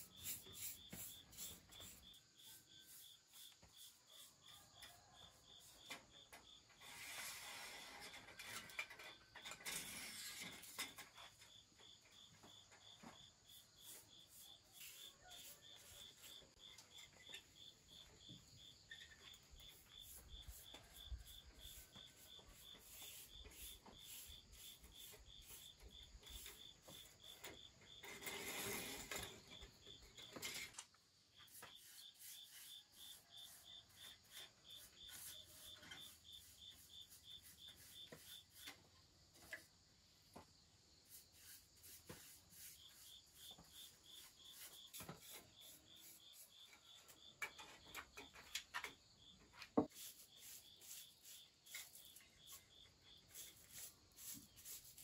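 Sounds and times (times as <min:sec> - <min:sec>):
rubbing and scraping: 0:00.0 - 0:03.9, 0:06.8 - 0:11.4, 0:19.2 - 0:30.8, 0:31.4 - 0:38.8, 0:41.1 - 0:46.6, 0:49.7 - 0:55.0
crickets chirping: 0:00.0 - 0:55.0.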